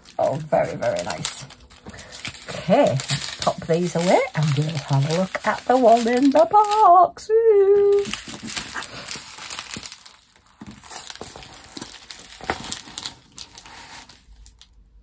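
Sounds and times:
plastic packaging crinkling: 0:00.0 - 0:07.0, 0:07.8 - 0:15.0.

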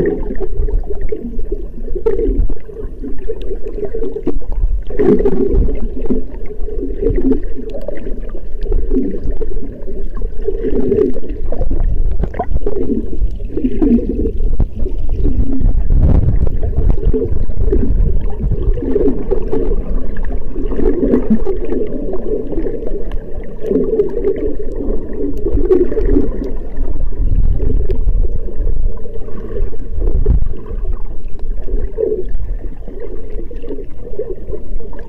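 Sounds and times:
underwater water gurgling: 0:00.0 - 0:35.0
low rumble: 0:08.6 - 0:22.4, 0:24.5 - 0:32.8.

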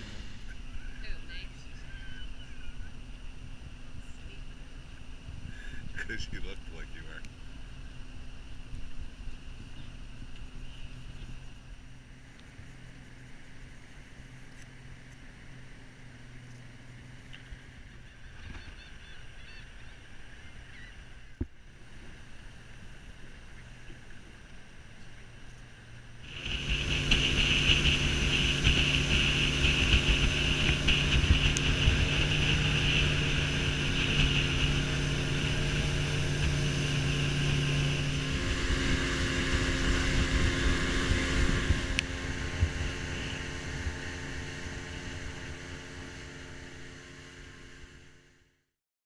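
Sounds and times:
outboard motor running: 0:00.0 - 0:48.6
wind buffeting microphone: 0:26.3 - 0:46.8.

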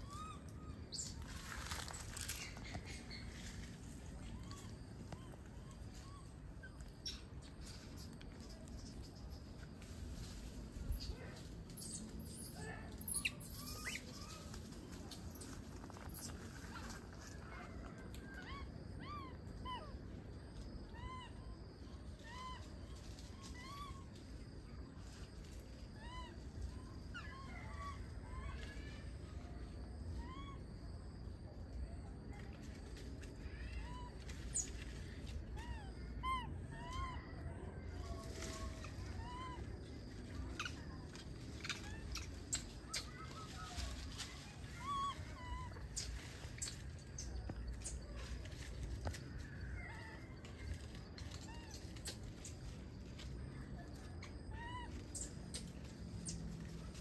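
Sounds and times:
baby monkey squeaky calls: 0:00.0 - 0:09.5, 0:10.9 - 0:14.6, 0:15.2 - 0:17.4, 0:22.2 - 0:24.1, 0:26.0 - 0:28.9, 0:30.2 - 0:30.6, 0:33.5 - 0:34.9, 0:35.5 - 0:37.2, 0:38.4 - 0:48.3, 0:50.8 - 0:52.7, 0:54.2 - 0:56.4
macaque coo calls: 0:30.1 - 0:30.6, 0:35.5 - 0:48.0, 0:54.2 - 0:55.6.

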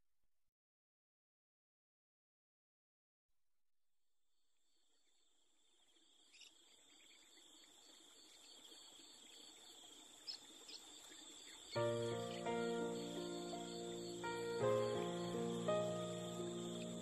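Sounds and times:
insects chirring: 0:04.7 - 0:17.0.

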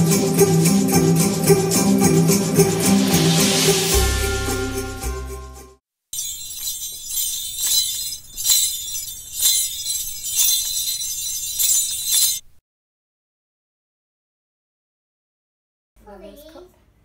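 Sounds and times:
high bright jingling: 0:00.0 - 0:12.6.

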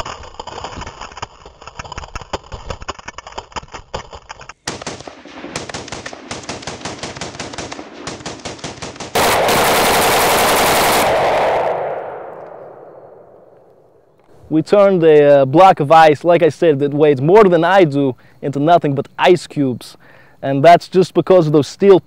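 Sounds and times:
rifle firing automatic bursts: 0:04.6 - 0:13.3.

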